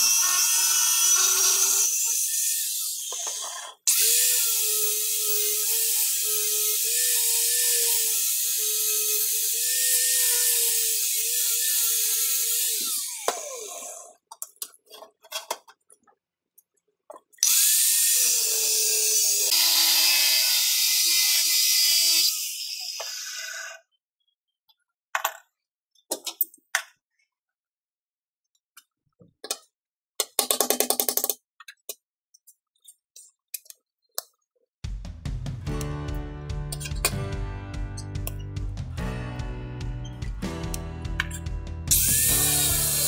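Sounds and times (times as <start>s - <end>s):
angle grinder cutting steel: 0.0s - 14.1s, 17.4s - 23.8s, 41.2s - 43.0s.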